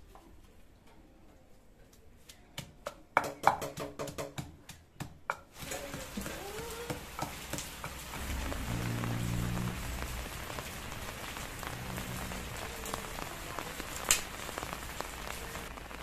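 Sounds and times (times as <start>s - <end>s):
pestle pounding in stone mortar: 2.6s - 8.4s
rain hiss: 5.6s - 16.0s.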